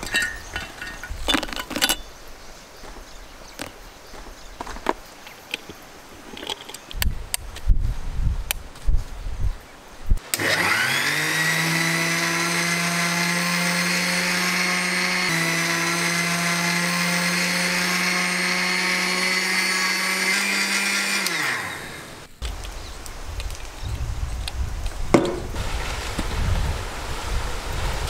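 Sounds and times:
mixer grinder motor whining: 10.3s - 22.3s.

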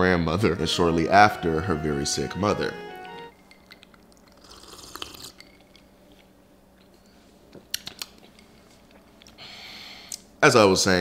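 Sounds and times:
person sipping and swallowing: 3.6s - 6.0s.

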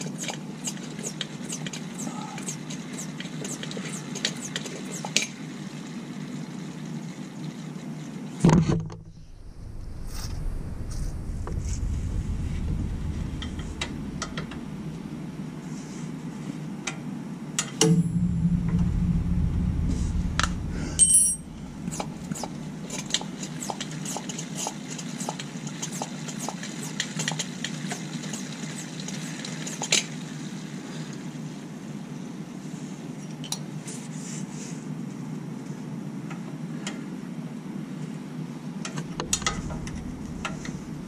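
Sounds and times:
low steady hum: 5.7s - 24.1s, 38.8s - 41.0s
sharp ringing clink: 21.0s - 21.5s.

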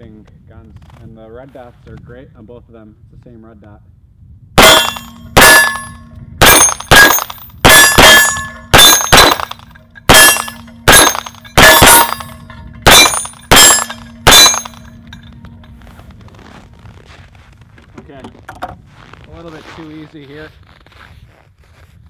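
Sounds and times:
pistol shots: 4.6s - 14.8s
steel gong target ringing: 4.6s - 16.0s.

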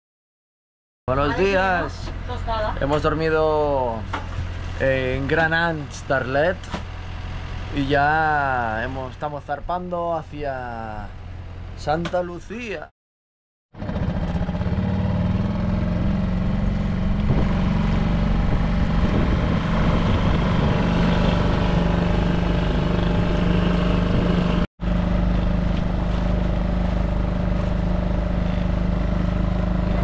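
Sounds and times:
outboard motor running: 13.8s - 30.0s.

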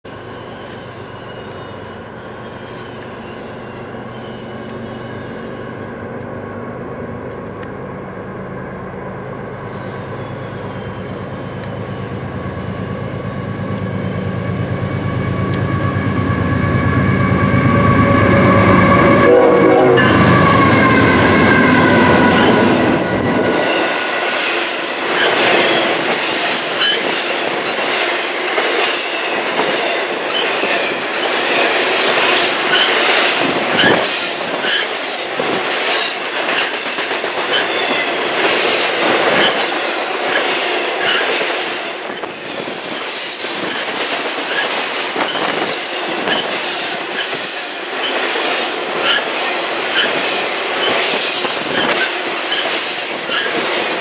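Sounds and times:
high wheel squeals: 0.1s - 6.0s, 9.4s - 12.3s, 14.8s - 27.2s, 29.1s - 38.1s, 38.9s - 54.0s
locomotive engine rumble: 3.9s - 24.2s
train horn chord: 16.6s - 23.4s
train wheel clatter: 19.9s - 54.0s.

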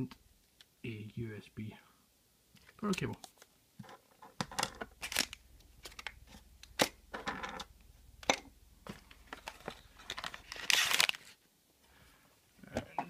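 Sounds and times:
wrapping rustling and crinkling: 4.9s - 7.0s, 8.8s - 11.4s.

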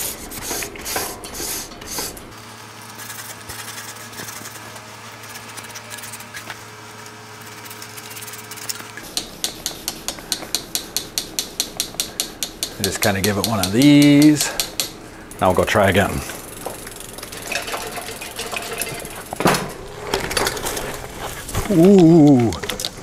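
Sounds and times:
steady low hum: 5.2s - 23.0s
mechanical ticking: 9.1s - 17.8s.

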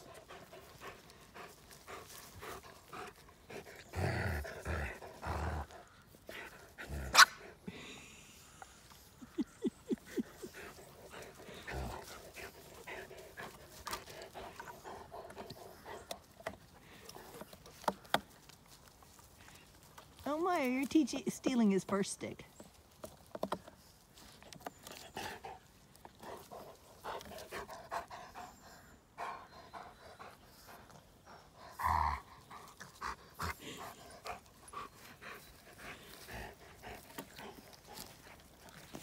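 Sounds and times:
dog gnawing on branch: 10.8s - 20.9s, 32.7s - 39.0s.

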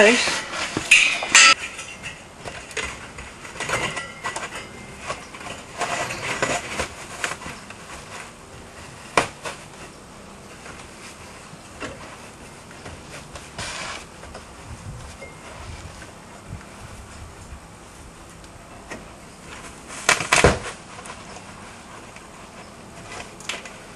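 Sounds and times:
sheet metal rattling and scraping: 0.0s - 9.8s.

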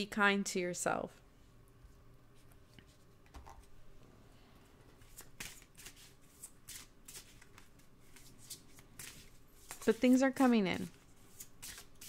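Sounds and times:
cards being shuffled: 5.0s - 12.0s.

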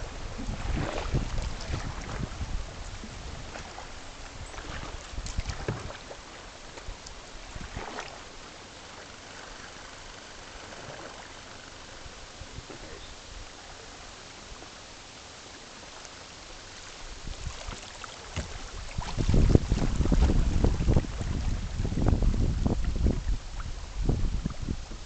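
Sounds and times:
wind rumble on microphone: 0.0s - 8.4s, 10.6s - 13.8s, 16.9s - 25.0s
water splashing around kayak: 0.0s - 25.0s.

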